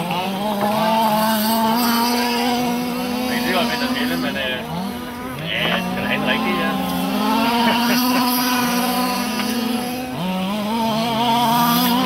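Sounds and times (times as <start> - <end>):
rc buggy engines running: 0.0 - 12.0.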